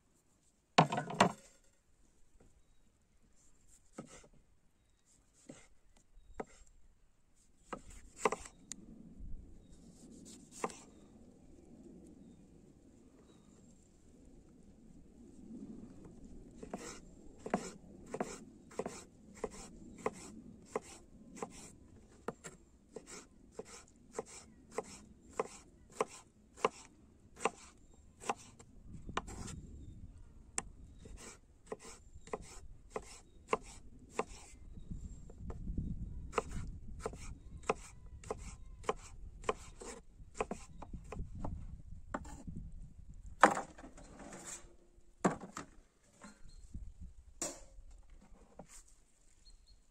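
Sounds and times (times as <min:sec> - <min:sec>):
knife chopping on wooden board: 0:07.7 - 0:08.4, 0:22.3 - 0:26.8, 0:27.4 - 0:27.6, 0:31.2 - 0:34.4, 0:36.4 - 0:40.7.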